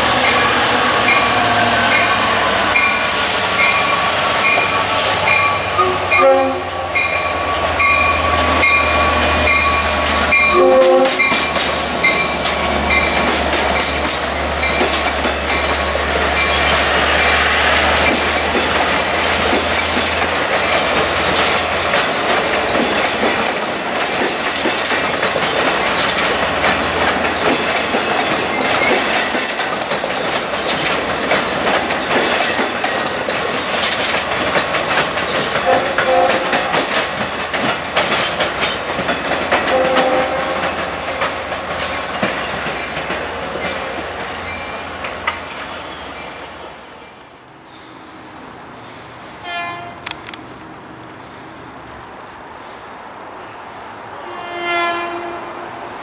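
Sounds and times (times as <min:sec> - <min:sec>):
locomotive rumble: 0:00.0 - 0:47.3
train wheels clattering on rails: 0:00.0 - 0:47.3
crossing bell ringing: 0:00.2 - 0:22.7
train horn blasts: 0:05.5 - 0:11.5, 0:35.6 - 0:36.6, 0:39.7 - 0:40.8, 0:49.4 - 0:50.0, 0:54.2 - 0:55.9.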